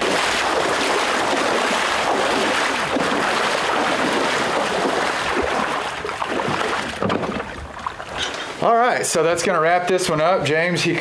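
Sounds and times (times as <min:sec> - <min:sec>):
wading through water: 0:00.0 - 0:08.7.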